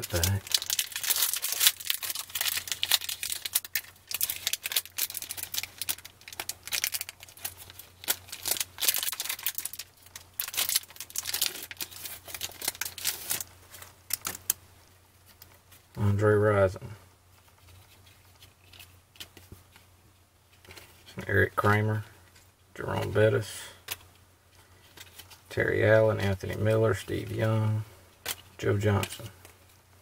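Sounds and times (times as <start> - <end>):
plastic wrapper crinkling: 0.0 - 14.6.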